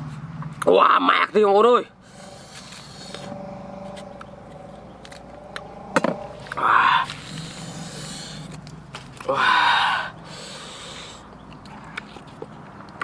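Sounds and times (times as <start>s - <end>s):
faint steady hum: 1.8s - 13.0s
man breathing out: 2.0s - 4.0s, 5.4s - 8.6s, 9.2s - 11.3s.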